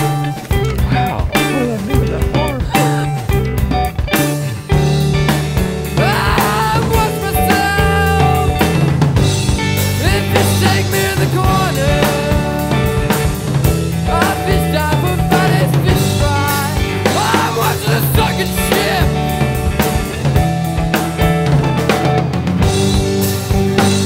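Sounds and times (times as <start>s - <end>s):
bending melodic line: 0.0s - 12.3s
drum kit: 0.0s - 24.0s
steady bass line: 0.0s - 24.0s.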